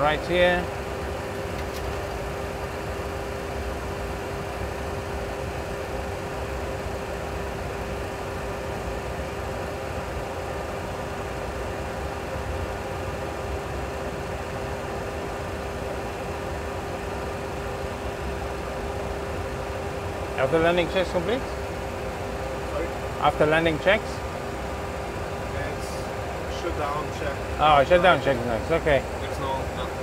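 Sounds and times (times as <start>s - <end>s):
jet engines idling: 0.0s - 30.0s.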